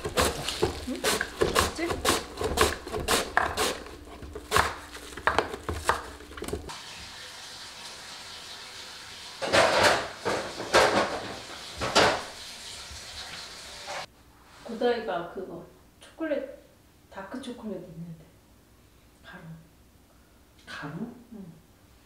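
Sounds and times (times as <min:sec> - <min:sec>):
radish scraping on hand grater: 0:00.0 - 0:04.8.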